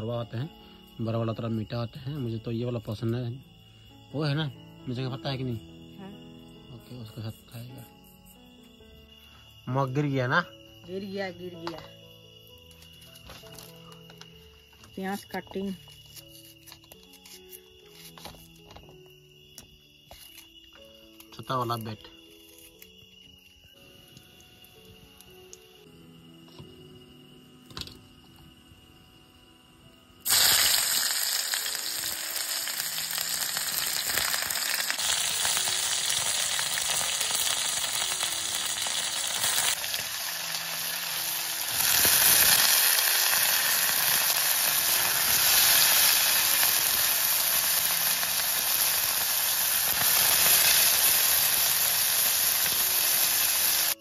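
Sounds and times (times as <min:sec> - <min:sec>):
food sizzling in a pan: 0:30.2 - 0:54.0.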